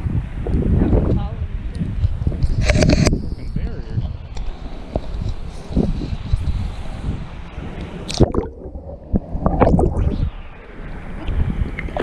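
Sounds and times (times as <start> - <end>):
camera splashing into water: 8.1 - 10.2
muffled underwater gurgling: 8.1 - 12.0.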